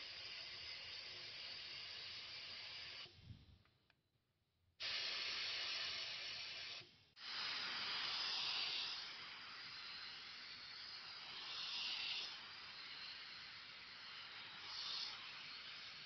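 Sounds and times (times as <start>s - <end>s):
spray gun hissing: 4.8s - 16.0s.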